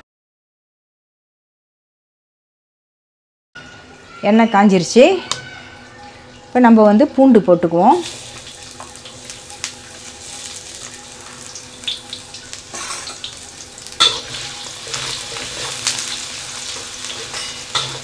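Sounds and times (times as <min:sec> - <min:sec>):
garlic and onion sizzling in oil: 0:04.2 - 0:18.0
spatula scraping a pan: 0:12.7 - 0:18.0.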